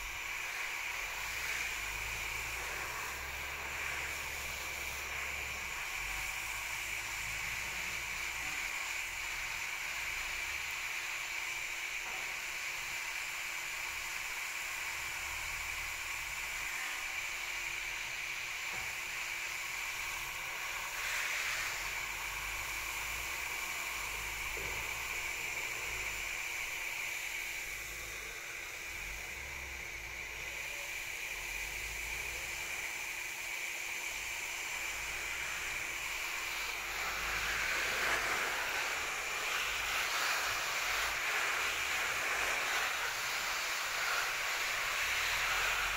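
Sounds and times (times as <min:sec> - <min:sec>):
water spray hissing on foliage: 0:34.1 - 0:45.9.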